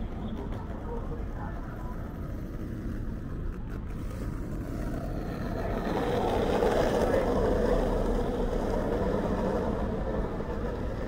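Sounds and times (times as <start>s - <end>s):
low traffic rumble: 0.0s - 11.0s
motor vehicle approaching: 2.4s - 11.0s.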